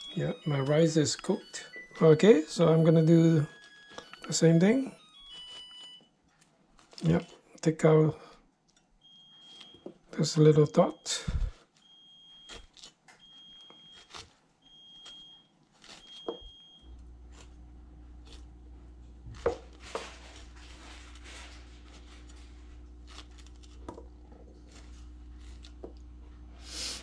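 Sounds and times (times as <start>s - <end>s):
electronic beeps: 0.0s - 6.1s
steady low hum: 16.5s - 27.0s.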